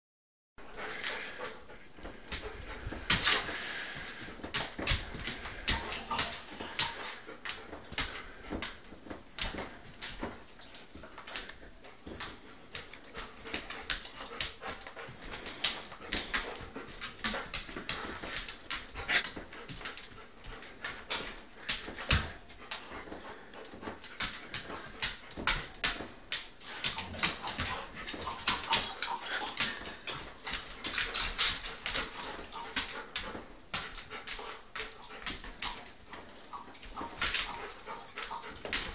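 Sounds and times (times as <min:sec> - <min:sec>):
dog claws skittering on vinyl floor: 0:00.7 - 0:38.9.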